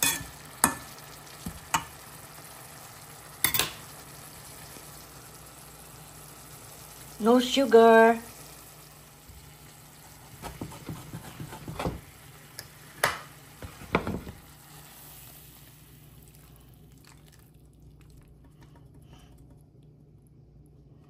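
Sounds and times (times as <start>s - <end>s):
food sizzling in a frying pan: 0.0s - 17.6s
utensil scraping a pan: 10.4s - 12.0s.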